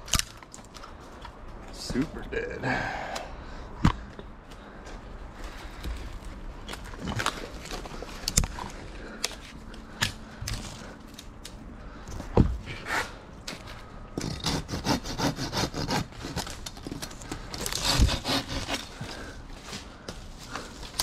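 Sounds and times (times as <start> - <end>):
hand saw cutting branch: 14.2 - 16.8, 17.5 - 19.2.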